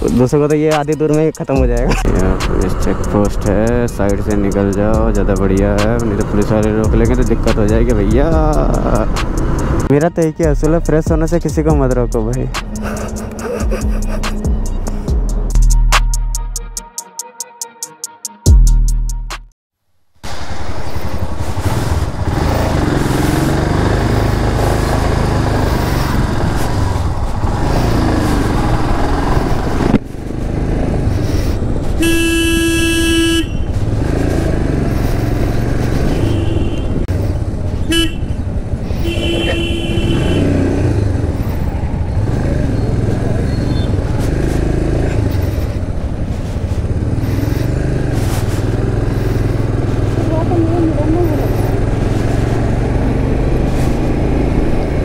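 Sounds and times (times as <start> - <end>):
motorcycle engine and road noise: 0.0 - 15.9, 20.0 - 55.0
vehicle horn honking: 32.0 - 33.8, 36.0 - 37.0, 37.8 - 40.8.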